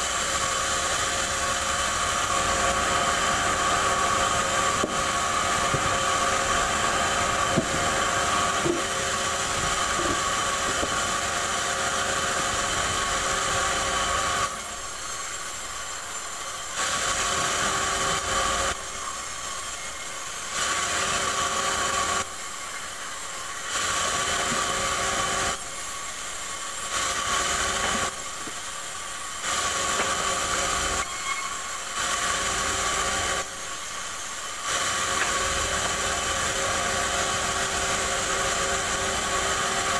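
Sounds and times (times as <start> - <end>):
band saw cutting wood: 0.0 - 39.9.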